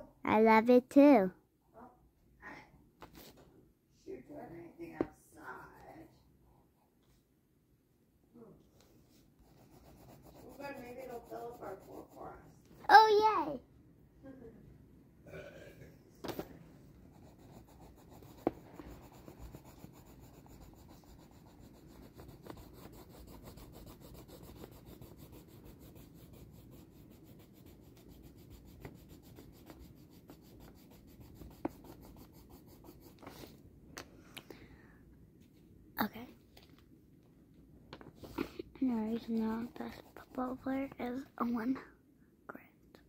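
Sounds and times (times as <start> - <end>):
pencil scribbling on paper: 9.4 - 12.5, 17.0 - 33.5, 38.8 - 41.0.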